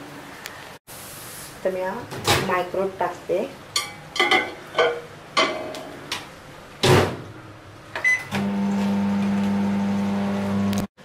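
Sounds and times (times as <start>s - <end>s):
microwave humming: 6.0s - 11.0s.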